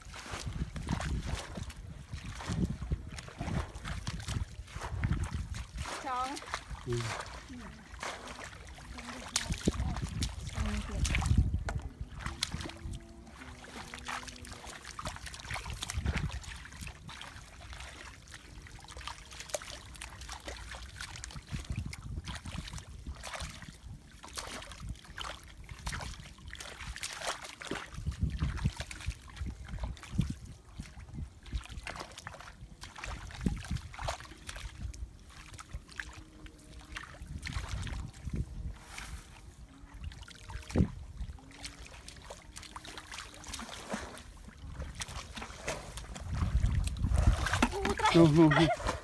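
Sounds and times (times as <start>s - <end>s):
muddy water splashing: 0.0s - 49.0s
dull low thumps: 0.4s - 7.4s, 9.4s - 13.0s, 44.7s - 49.0s.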